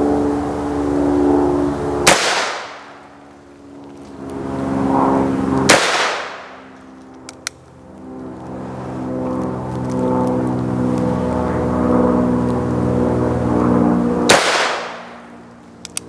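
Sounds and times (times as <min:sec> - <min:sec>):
steady engine hum: 0:00.0 - 0:16.0
gunshot echo: 0:02.0 - 0:02.9, 0:05.7 - 0:06.6, 0:14.3 - 0:15.1
revolver gunshots: 0:02.0 - 0:03.0, 0:05.6 - 0:06.7, 0:14.2 - 0:15.2.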